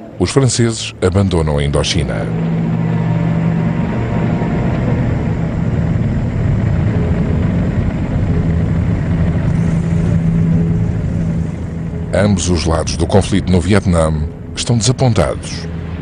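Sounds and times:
truck engine droning: 0.0s - 16.0s.

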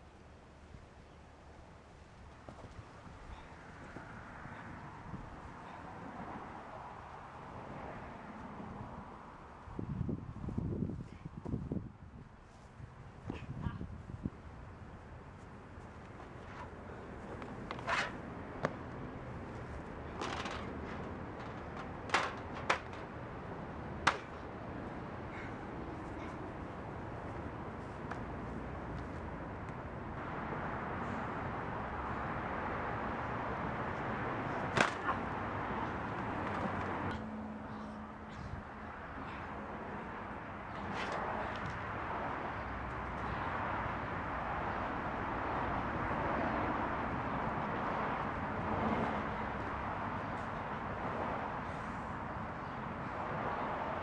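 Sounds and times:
passing street traffic: 0.0s - 54.0s
sharp smacks of strikes: 34.8s - 35.1s.

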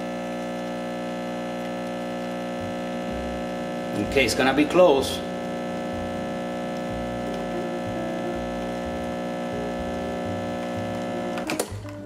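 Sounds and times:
espresso machine pump humming: 0.0s - 12.0s
pump switching off click: 8.5s - 12.0s.

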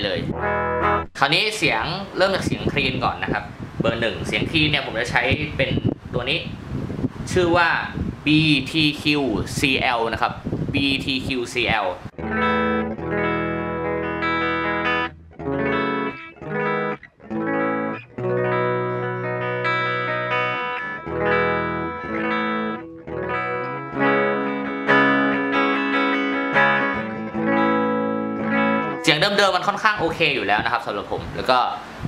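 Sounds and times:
clean electric guitar: 0.0s - 1.2s, 2.1s - 7.3s, 12.0s - 30.6s.

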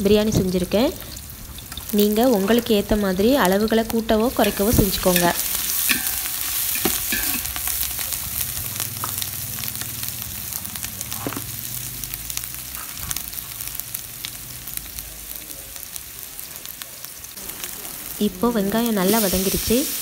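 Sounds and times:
onions sizzling in oil: 0.0s - 20.0s
metal spatula scraping: 4.2s - 7.7s.

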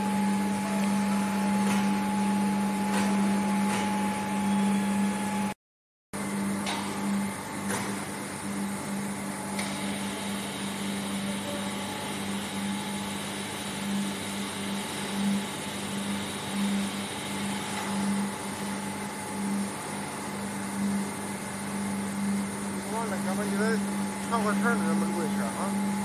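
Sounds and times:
machinery drone: 22.2s - 26.0s.

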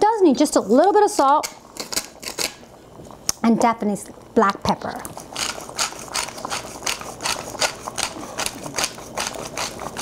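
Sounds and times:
pepper grinder grinding: 0.9s - 2.6s, 5.1s - 10.0s.

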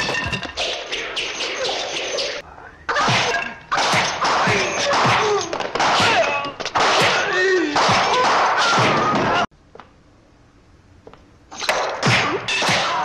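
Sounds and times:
punch and whack sound effects: 3.0s - 9.4s, 12.0s - 13.0s.

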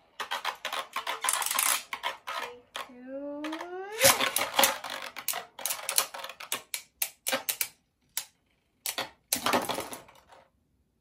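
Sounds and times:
spinning tops clattering together: 0.2s - 6.7s.

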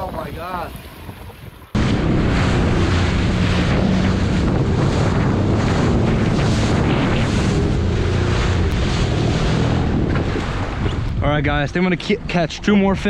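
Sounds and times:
wind buffeting microphone: 0.0s - 13.0s
water spray rushing: 1.8s - 11.1s
jet ski engine hum: 1.8s - 13.0s.

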